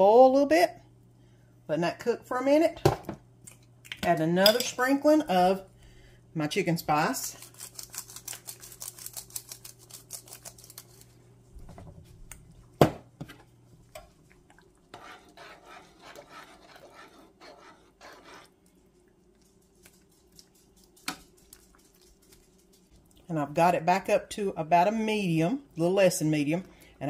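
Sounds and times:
spice container rattling: 0:07.3 - 0:11.1
scratchy rustling at pan: 0:14.8 - 0:23.0.

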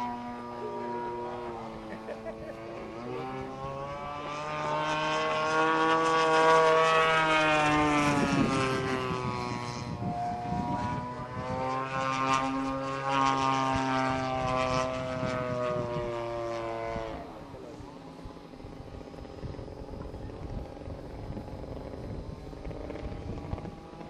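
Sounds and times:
aerobatic plane engine and propeller: 0:00.0 - 0:24.0.

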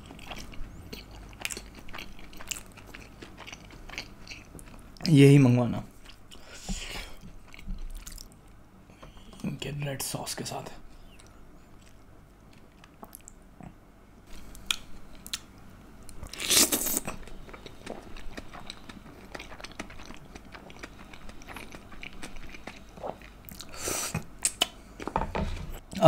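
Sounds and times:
wet chewing: 0:00.0 - 0:05.1, 0:06.0 - 0:08.4, 0:16.1 - 0:25.1.

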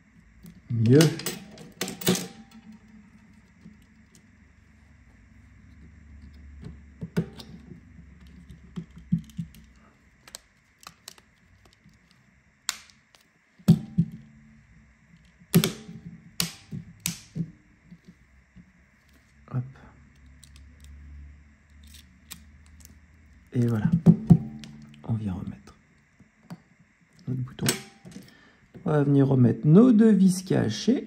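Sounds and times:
clicks of tools and phone parts: 0:06.2 - 0:14.2.

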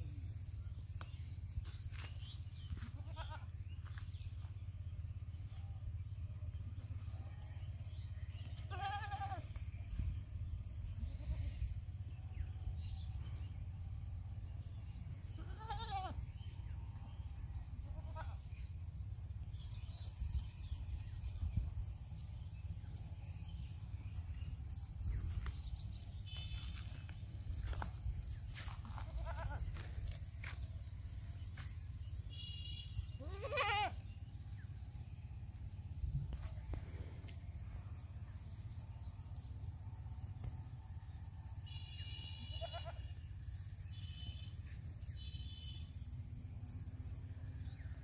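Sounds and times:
young goats bleating: 0:02.8 - 0:03.6, 0:08.4 - 0:09.6, 0:11.0 - 0:11.8, 0:15.2 - 0:16.5, 0:17.7 - 0:18.7, 0:28.6 - 0:30.2, 0:32.8 - 0:34.2, 0:41.8 - 0:43.3
steady low rumble: 0:03.6 - 0:33.3, 0:34.0 - 0:41.6.

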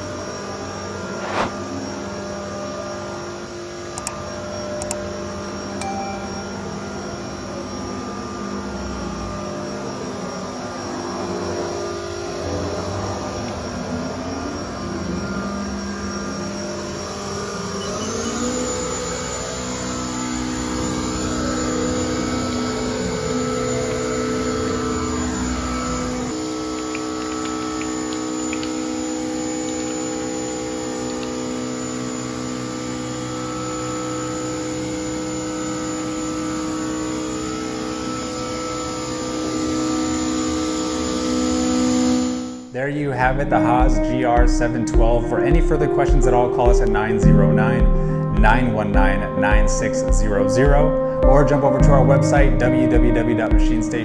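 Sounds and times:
router spindle whining: 0:00.0 - 0:42.7.

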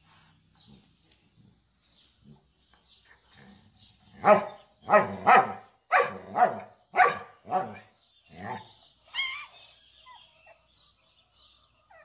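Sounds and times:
dog barking: 0:04.2 - 0:07.8.

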